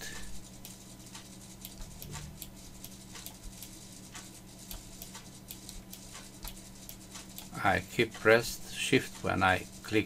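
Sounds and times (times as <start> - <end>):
low electrical hum: 0.0 - 10.0
computer mouse clicks: 0.6 - 8.3.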